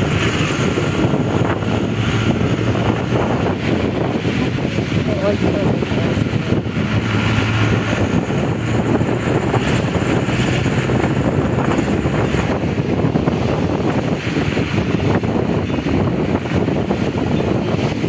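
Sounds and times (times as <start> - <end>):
engine hum: 0.0 - 18.0
road noise: 0.0 - 18.0
wind rumbling on microphone: 0.0 - 18.0.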